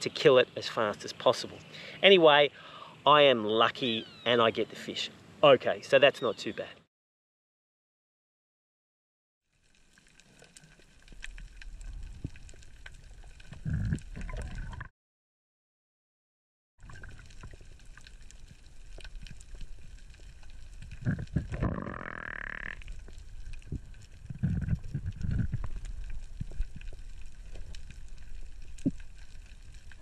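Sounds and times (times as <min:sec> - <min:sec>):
underwater fine crackling: 0:09.4 - 0:14.9, 0:16.8 - 0:30.0
gurgling water and bubbles: 0:09.5 - 0:14.9, 0:16.8 - 0:30.0.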